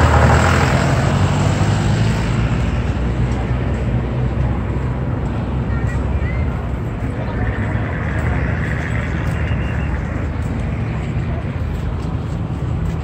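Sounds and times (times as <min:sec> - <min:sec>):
low outdoor rumble: 0:00.0 - 0:13.0
faint distant voices: 0:02.5 - 0:13.0.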